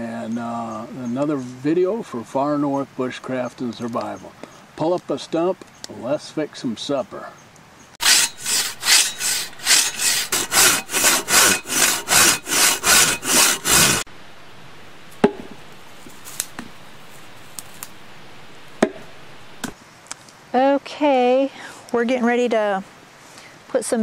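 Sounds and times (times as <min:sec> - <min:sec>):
hand saw cutting log: 0:08.0 - 0:14.1.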